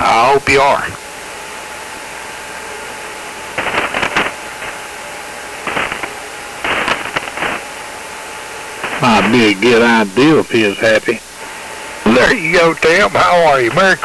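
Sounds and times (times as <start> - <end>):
radio static hiss: 0.0 - 14.0
short bursts of radio noise: 3.6 - 4.9, 5.6 - 7.8, 8.8 - 10.8.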